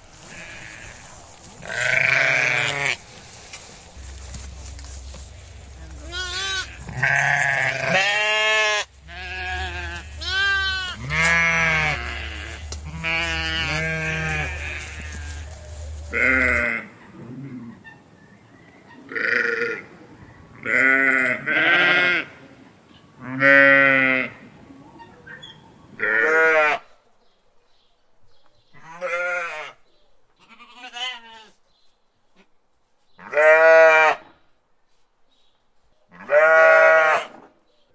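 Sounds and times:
goats and sheep bleating: 0:00.2 - 0:03.1, 0:05.2 - 0:15.5, 0:16.1 - 0:17.8, 0:19.0 - 0:19.9, 0:20.6 - 0:22.4, 0:23.2 - 0:24.4, 0:26.0 - 0:26.9, 0:28.8 - 0:29.8, 0:30.4 - 0:31.6, 0:33.2 - 0:34.3, 0:36.1 - 0:37.3.

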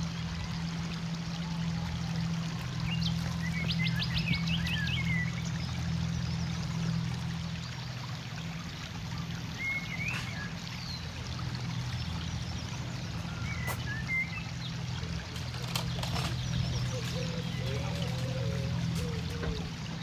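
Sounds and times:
water trickling: 0:00.0 - 0:20.0
bird chirp: 0:09.6 - 0:20.0.

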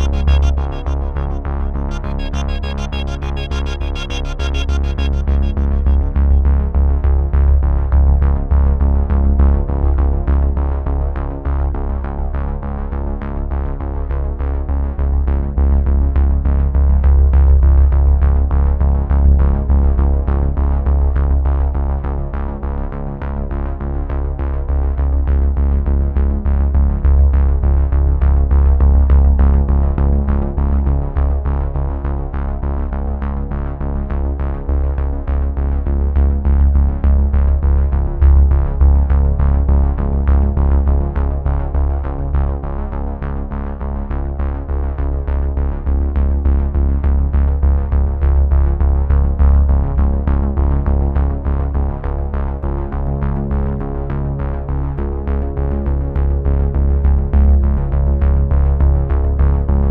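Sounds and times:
music with steady beat and bass: 0:00.0 - 0:07.2, 0:35.5 - 0:59.9.

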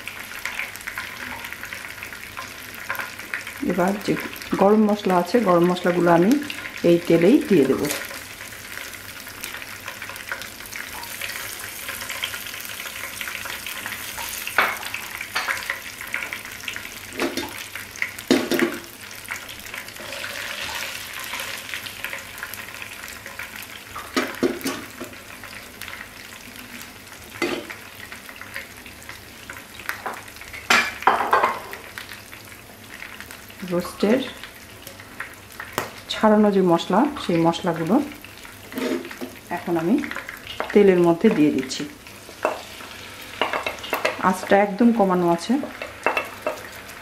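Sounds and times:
spices sizzling in hot oil: 0:00.0 - 0:47.0
spatula scraping pan: 0:20.0 - 0:21.8, 0:38.6 - 0:39.4.

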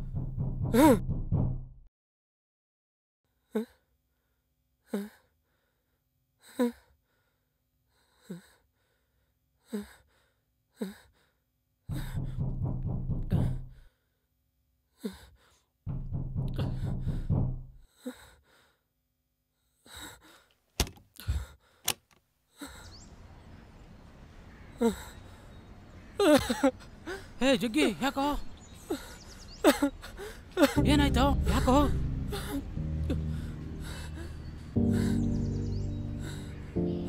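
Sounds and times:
knocks on a door: 0:00.0 - 0:01.9, 0:11.9 - 0:13.8, 0:15.9 - 0:17.8
loud deep rumbling: 0:00.0 - 0:01.9, 0:11.9 - 0:13.8, 0:15.9 - 0:17.8, 0:30.8 - 0:36.8.

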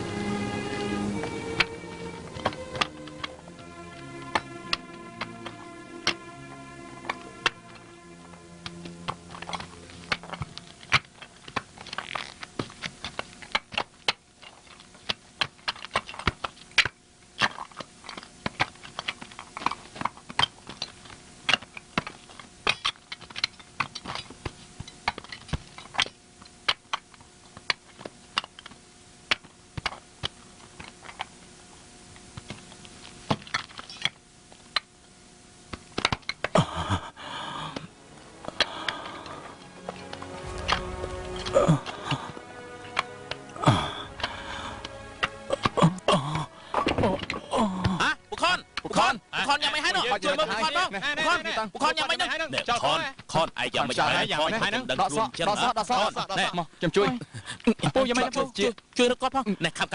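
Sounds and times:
bricks and hand tools clicking: 0:08.6 - 0:31.3, 0:35.7 - 0:36.7.

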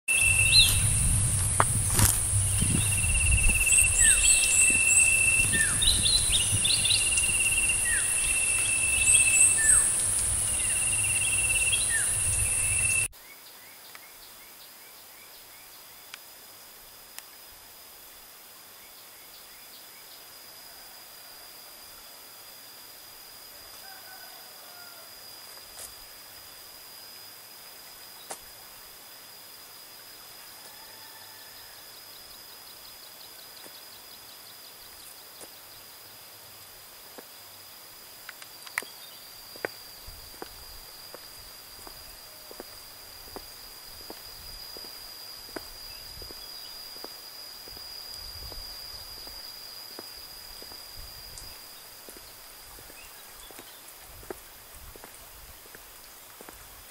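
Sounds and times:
high-pitched insect buzz: 0:00.1 - 0:13.1, 0:38.6 - 0:54.4
footsteps on concrete: 0:00.6 - 0:03.0, 0:39.5 - 0:50.9, 0:52.0 - 0:56.6.

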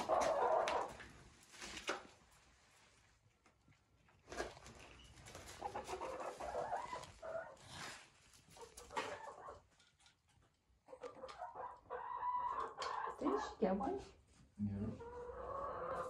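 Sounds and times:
hens clucking: 0:00.0 - 0:01.1, 0:05.2 - 0:14.1, 0:14.8 - 0:16.0.

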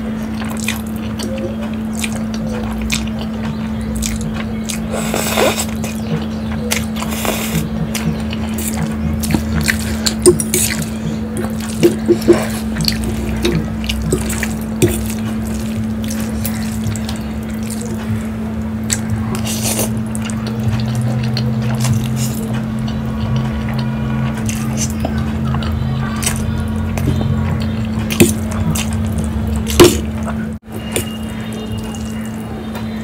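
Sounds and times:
slurping and chewing noodles: 0:00.0 - 0:32.4
steady low hum: 0:00.0 - 0:33.0
mouth smacks and clicks: 0:00.3 - 0:31.1.

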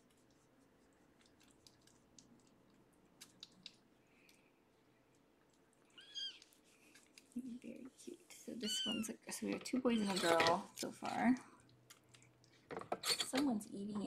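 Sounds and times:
soft clicks and rustles: 0:05.1 - 0:08.2.

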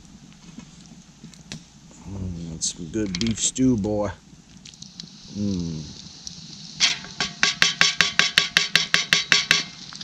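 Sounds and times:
spoon knocking against pot: 0:06.8 - 0:09.7.

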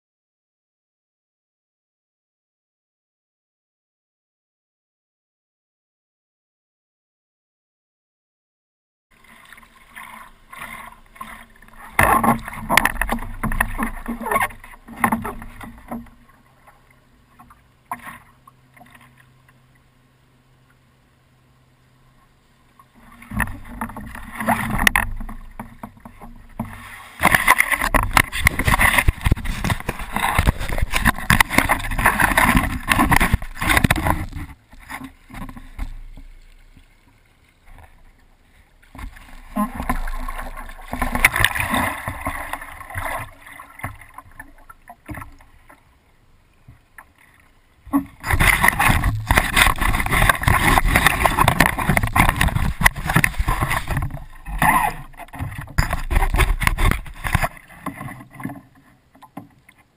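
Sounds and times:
water splashing against paddleboard: 0:09.1 - 0:19.7, 0:22.7 - 0:46.0, 0:46.6 - 0:59.9.

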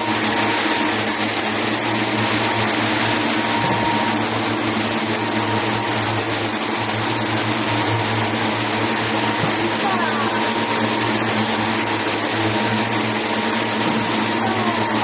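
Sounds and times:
factory machinery humming: 0:00.0 - 0:15.0.

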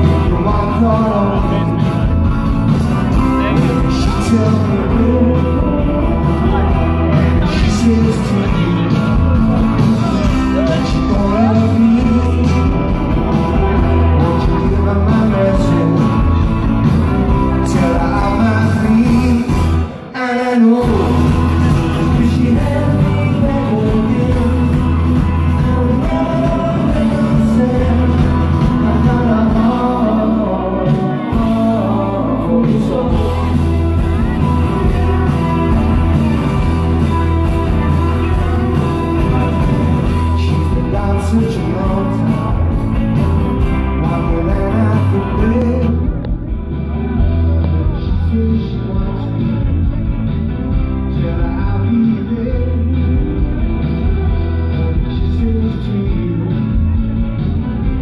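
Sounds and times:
person singing: 0:00.0 - 0:50.4, 0:51.0 - 0:58.0
rock band playing live: 0:00.0 - 0:58.0.

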